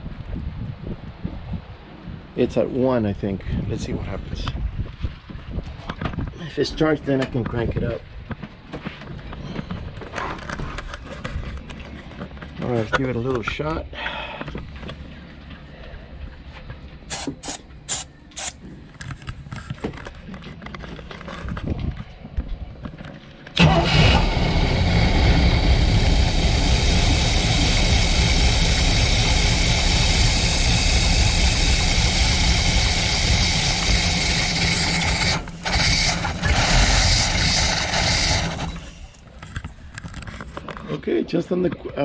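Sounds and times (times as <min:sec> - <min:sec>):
starting fluid spray hisses: 0:17.1 - 0:18.6, 0:23.6 - 0:39.2
boat engine starting and running: 0:23.6 - 0:39.2.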